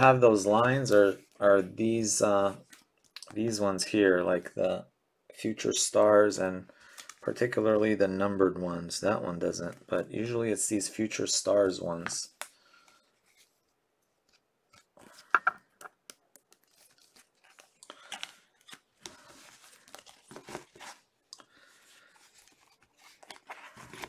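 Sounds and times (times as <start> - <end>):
cards rustling: 0.0 - 3.5, 14.2 - 24.0.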